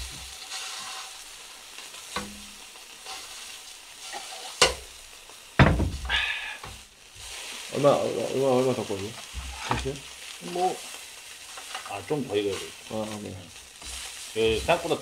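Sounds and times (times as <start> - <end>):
meat sizzling in a pan: 0.0 - 15.0
sharp knocks: 5.6 - 6.1.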